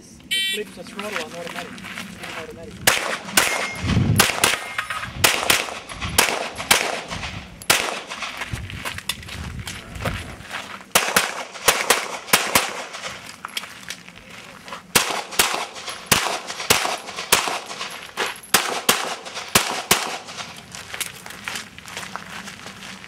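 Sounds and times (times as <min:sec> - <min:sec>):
pistol shots: 0:02.8 - 0:08.4, 0:10.9 - 0:13.3, 0:14.9 - 0:20.6.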